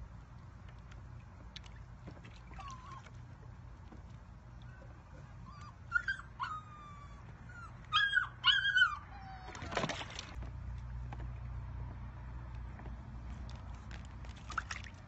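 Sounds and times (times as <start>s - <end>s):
puppy whimpering: 2.6s - 3.1s, 5.3s - 9.9s.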